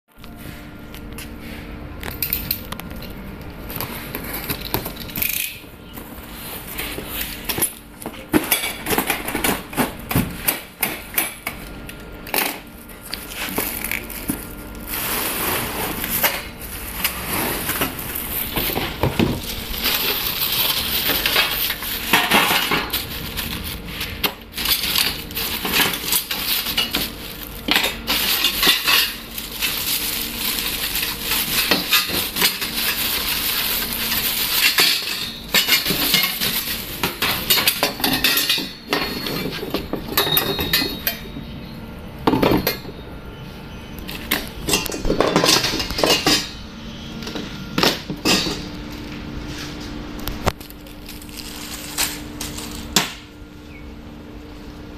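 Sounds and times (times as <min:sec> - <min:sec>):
plastic wrapping crinkling: 0:12.9 - 0:37.8, 0:50.2 - 0:53.0
metal tubes clinking: 0:24.6 - 0:41.3.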